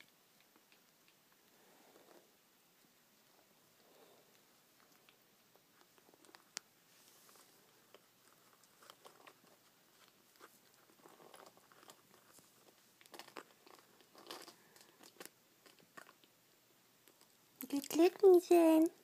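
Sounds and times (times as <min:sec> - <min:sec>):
kitten pawing clicks and rustles: 0:04.3 - 0:16.4.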